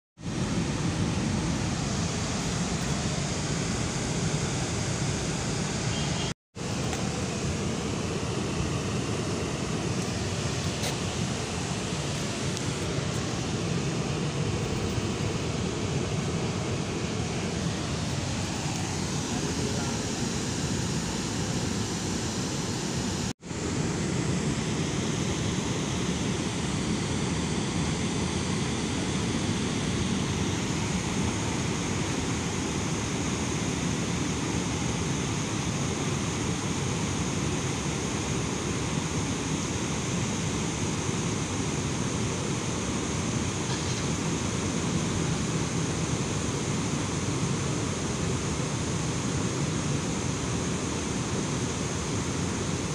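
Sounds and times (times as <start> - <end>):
river rushing: 6.6 - 26.5.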